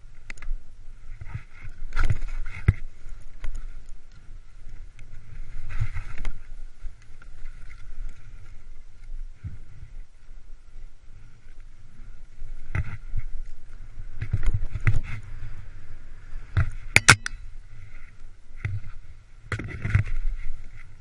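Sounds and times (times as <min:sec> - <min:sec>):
skis running through snow: 0:00.0 - 0:16.8
ski knocks and scrapes: 0:01.1 - 0:03.7, 0:05.1 - 0:06.6, 0:12.5 - 0:13.4, 0:14.1 - 0:15.6, 0:17.7 - 0:21.0.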